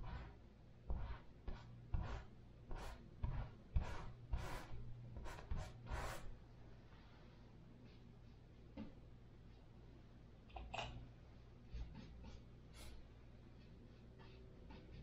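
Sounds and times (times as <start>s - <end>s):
paint rubbing on canvas: 0.0s - 6.3s.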